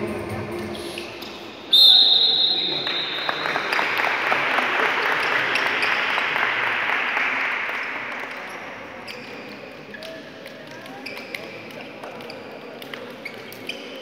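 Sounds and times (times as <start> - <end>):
spectators applauding: 2.7 - 8.5.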